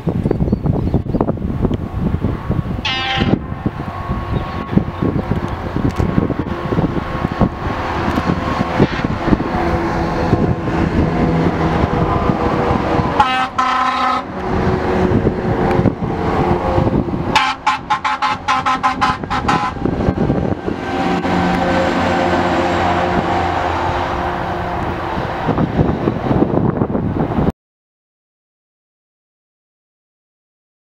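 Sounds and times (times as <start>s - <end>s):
heavy truck driving past: 1.8s - 27.5s
truck horn blasts: 2.7s - 25.2s.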